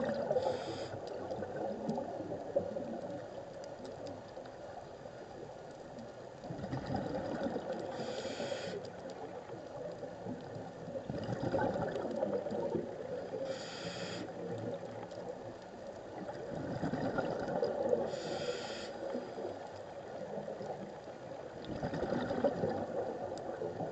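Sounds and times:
hissing regulator inhalations: 0:00.4 - 0:01.0, 0:07.9 - 0:08.9, 0:13.4 - 0:14.3, 0:18.1 - 0:19.3
bubbling exhalations: 0:11.1 - 0:12.7, 0:21.7 - 0:22.9.

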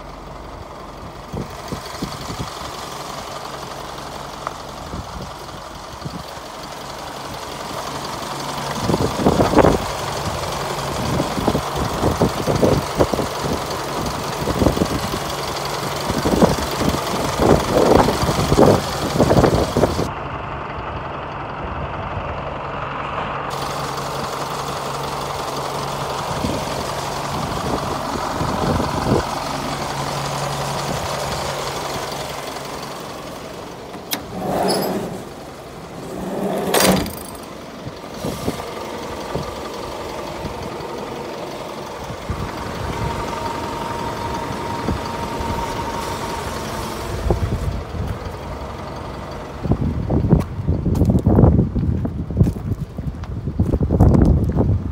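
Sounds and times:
truck engine idling: 0:00.0 - 0:54.9.

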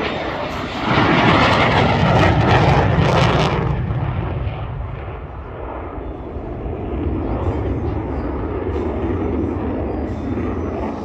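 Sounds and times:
fighter jet passing low: 0:00.0 - 0:11.0.

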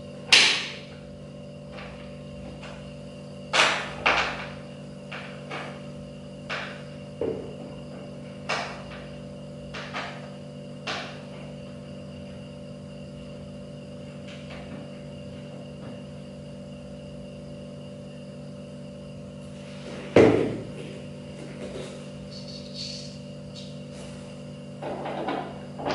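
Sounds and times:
steady low hum: 0:00.0 - 0:25.9
clicks and knocks of chair parts: 0:00.3 - 0:01.0, 0:03.5 - 0:05.8, 0:06.4 - 0:09.1, 0:09.7 - 0:11.5, 0:19.8 - 0:24.2, 0:24.8 - 0:25.9.

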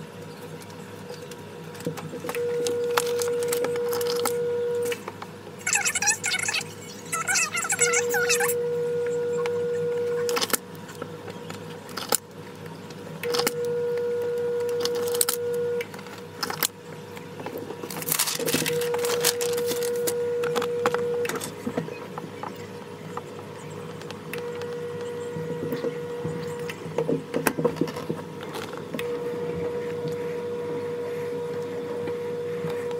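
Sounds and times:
paper rustling: 0:17.8 - 0:20.2.

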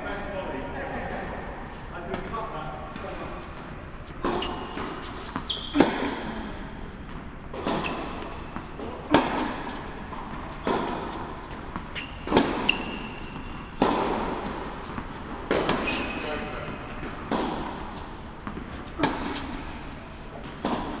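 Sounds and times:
shoe squeaks: 0:04.0 - 0:06.2, 0:07.5 - 0:09.8, 0:11.8 - 0:13.8, 0:14.8 - 0:17.0, 0:18.8 - 0:21.0
tennis ball bouncing on hard court: 0:04.1 - 0:06.3, 0:07.0 - 0:21.0
tennis ball hit by rackets: 0:04.2 - 0:06.3, 0:07.5 - 0:21.0.

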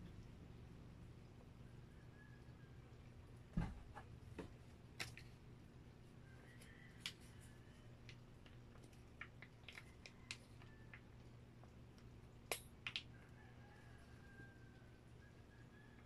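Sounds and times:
plastic pouch clicks and crackles: 0:05.0 - 0:05.3, 0:08.0 - 0:11.1, 0:12.0 - 0:13.2.

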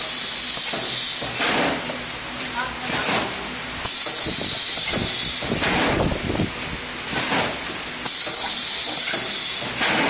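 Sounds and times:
pneumatic air hiss: 0:00.0 - 0:02.0, 0:02.9 - 0:06.3, 0:07.0 - 0:10.0
mechanical clatter: 0:03.9 - 0:10.0.

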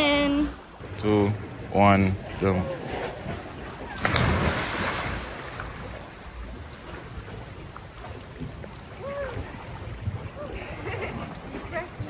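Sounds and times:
water wash from swimming: 0:00.8 - 0:12.0
people splashing into water: 0:02.2 - 0:12.0.

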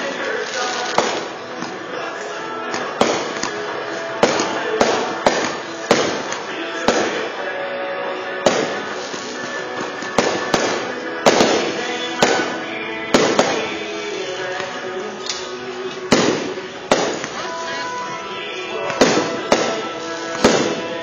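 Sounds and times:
firework shells bursting: 0:00.0 - 0:01.6, 0:02.7 - 0:07.4, 0:08.4 - 0:14.6, 0:15.2 - 0:17.4, 0:18.9 - 0:21.0
music playing: 0:00.0 - 0:21.0.

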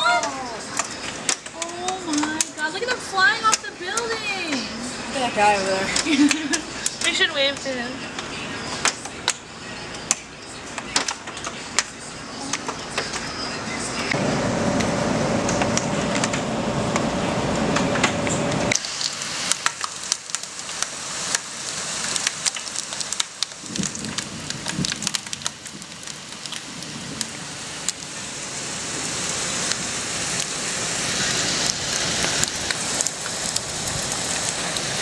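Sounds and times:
rain and hail on glass: 0:00.0 - 0:09.4, 0:14.7 - 0:35.0
steady hum with held tone: 0:13.2 - 0:18.8.

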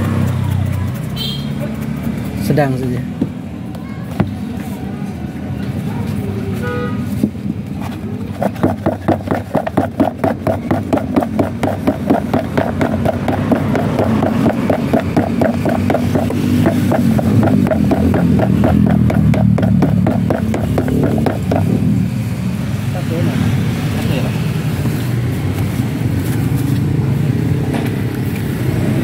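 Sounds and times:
fruit rattling in plastic tub: 0:08.2 - 0:21.8.

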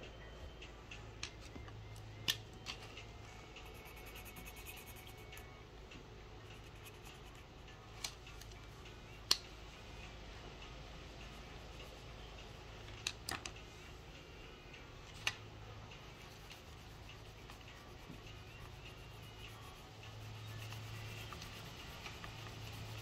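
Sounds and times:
pastel scratching on paper: 0:03.6 - 0:05.5, 0:16.1 - 0:23.0.

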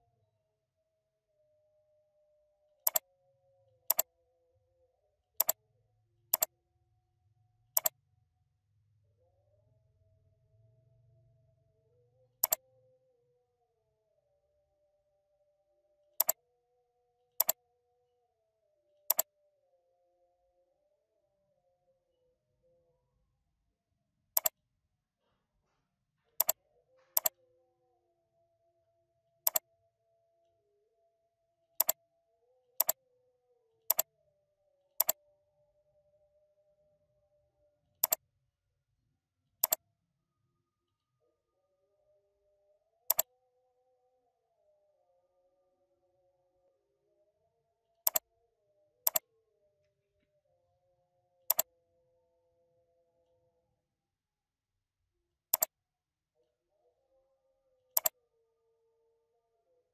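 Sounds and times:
computer mouse clicking: 0:02.8 - 0:03.0, 0:03.9 - 0:04.1, 0:05.4 - 0:05.6, 0:06.3 - 0:06.5, 0:07.8 - 0:08.0, 0:12.4 - 0:12.6, 0:16.2 - 0:16.4, 0:17.4 - 0:17.6, 0:19.1 - 0:19.3, 0:24.4 - 0:24.6, 0:26.3 - 0:27.4, 0:33.9 - 0:34.1, 0:35.0 - 0:35.2, 0:43.1 - 0:43.3, 0:51.5 - 0:51.7, 0:57.9 - 0:58.2.

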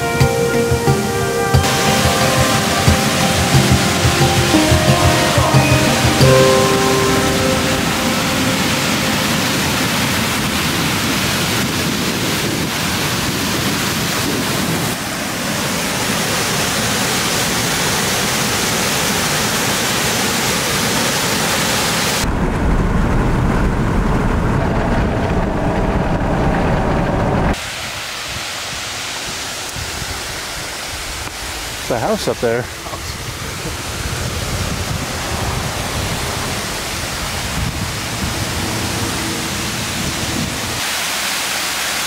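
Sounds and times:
water rushing through spillway: 0:00.0 - 0:42.0
wind rumble on microphone: 0:07.9 - 0:15.2, 0:22.2 - 0:31.8, 0:32.7 - 0:40.9.

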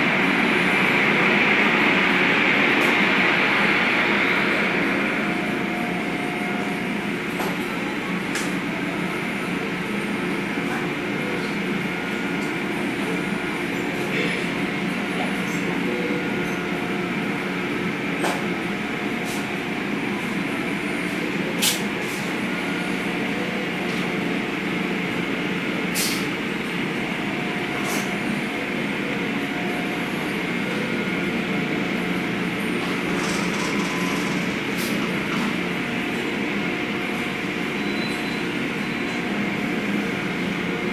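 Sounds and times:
car wash machinery noise: 0:00.0 - 0:40.9
brief hisses: 0:26.0 - 0:26.3.

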